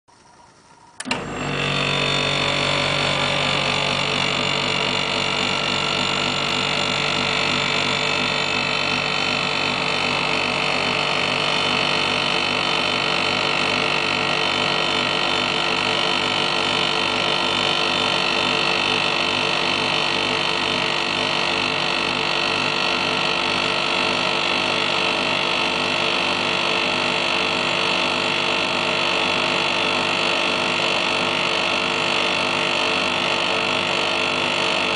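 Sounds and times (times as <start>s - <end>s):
compressor and fan humming: 0.1s - 34.9s.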